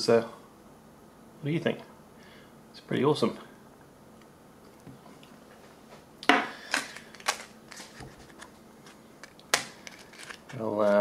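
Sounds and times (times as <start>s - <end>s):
packaged items clicking and rustling: 6.6s - 8.5s, 9.2s - 10.6s.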